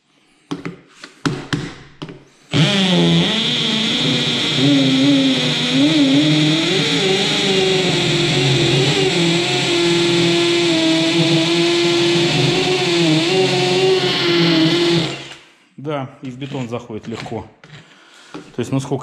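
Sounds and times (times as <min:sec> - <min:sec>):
hammer drill boring into concrete: 0:02.5 - 0:15.5.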